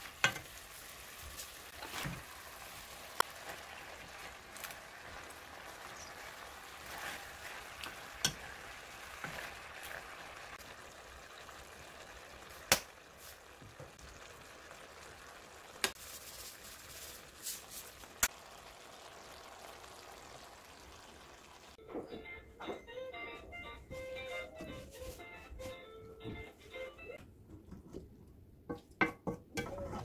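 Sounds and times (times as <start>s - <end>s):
pork sizzling in a wok: 0.0s - 21.8s
wooden spatula scraping: 0.3s - 4.3s, 6.6s - 10.1s, 15.9s - 18.1s, 29.6s - 30.0s.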